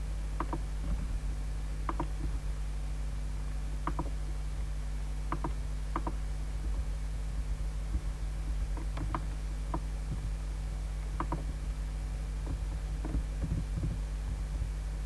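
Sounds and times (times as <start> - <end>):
low electrical hum: 0.0 - 15.0
mouse and keyboard clicks: 1.9 - 2.3, 11.2 - 11.5.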